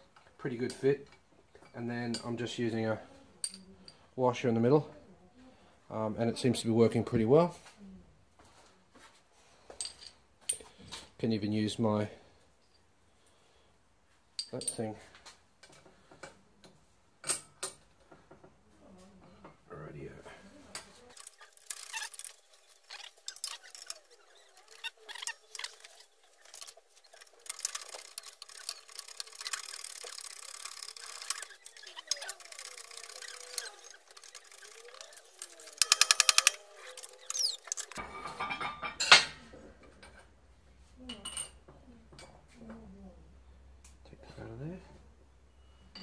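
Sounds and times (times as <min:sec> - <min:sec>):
hydraulic press and metal parts clinking: 0:20.7 - 0:39.3.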